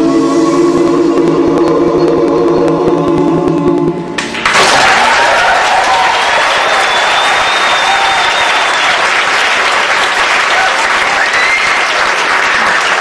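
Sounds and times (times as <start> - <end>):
audience applauding: 4.2 - 13.0
high whistle: 6.4 - 9.0, 11.1 - 12.0.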